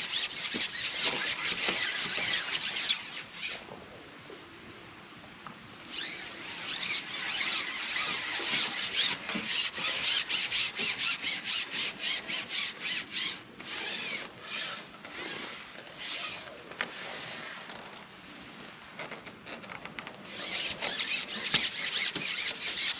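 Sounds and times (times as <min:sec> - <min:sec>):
fishing pole rubbing through hands: 0:00.0 - 0:03.6, 0:05.9 - 0:17.7, 0:20.2 - 0:22.9.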